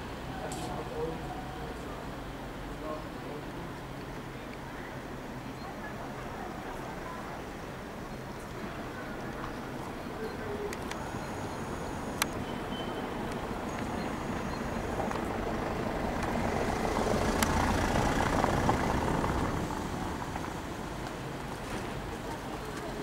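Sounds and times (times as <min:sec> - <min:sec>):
motor vehicle passing: 0:13.2 - 0:22.4.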